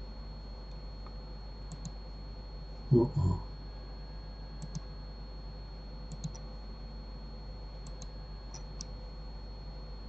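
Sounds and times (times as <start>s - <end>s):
electrical hum: 0.0s - 10.0s
computer mouse clicks: 1.7s - 2.0s, 4.6s - 4.9s, 6.1s - 6.5s, 7.8s - 9.0s.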